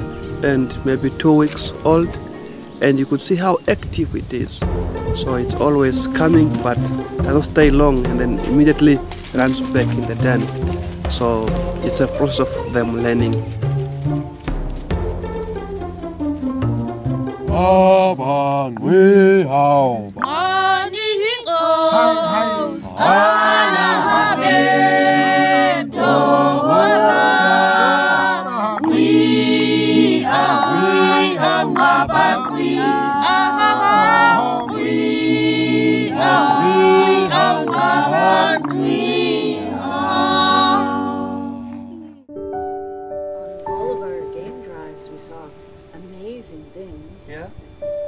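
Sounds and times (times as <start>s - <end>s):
choir singing a cappella: 5.2s - 13.4s, 20.2s - 42.3s.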